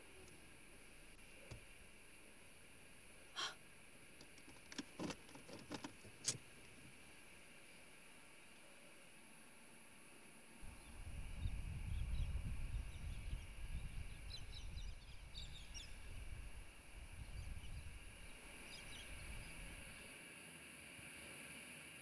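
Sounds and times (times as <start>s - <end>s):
faint bird chirps: 10.7s - 16.1s, 17.2s - 20.1s.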